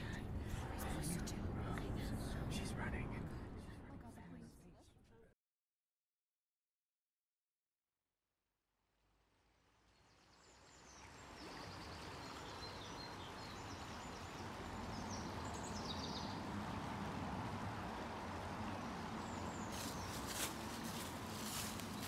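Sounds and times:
small birds chirping: 0:10.8 - 0:16.8, 0:18.0 - 0:22.0.

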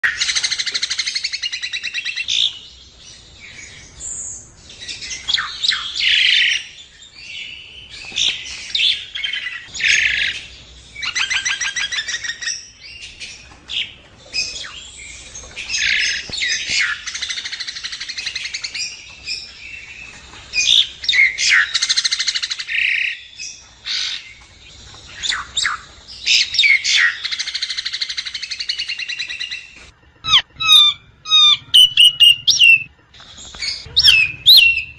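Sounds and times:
bird singing and chattering: 0:25.0 - 0:34.9.

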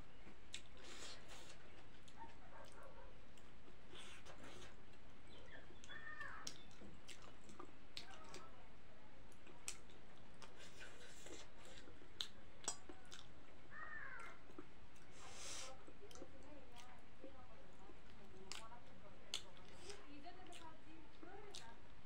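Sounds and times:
person chewing noodles: 0:00.2 - 0:08.4, 0:09.3 - 0:17.0, 0:18.0 - 0:18.7, 0:19.3 - 0:20.7, 0:21.4 - 0:21.7.

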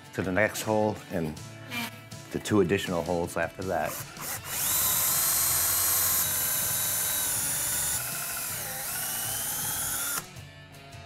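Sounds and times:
cordless drill boring into wood: 0:03.8 - 0:10.3.

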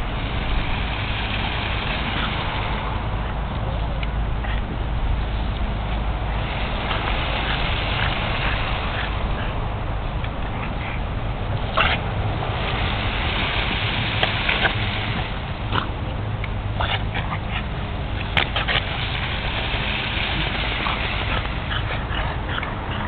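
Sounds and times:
lawn sprinkler spraying: 0:00.0 - 0:03.0, 0:06.3 - 0:09.4, 0:11.7 - 0:16.9, 0:17.6 - 0:22.0
dogs snapping at water: 0:05.5 - 0:23.0.

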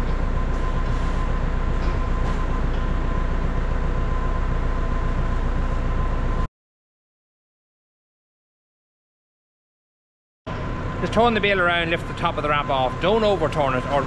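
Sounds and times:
high whine: 0:00.0 - 0:06.5, 0:10.5 - 0:14.0
tractor engine running: 0:00.0 - 0:06.5.

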